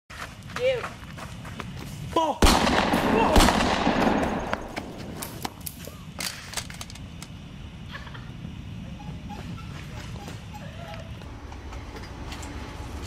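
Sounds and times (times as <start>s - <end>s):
loud gunshot: 2.4s - 5.0s
faint sharp gunshots: 2.4s - 5.2s
people shouting: 3.0s - 3.5s.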